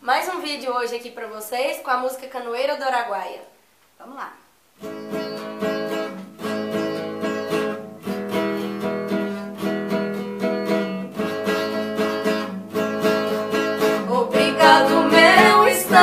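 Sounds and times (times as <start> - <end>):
acoustic guitar strumming: 4.8 - 16.0.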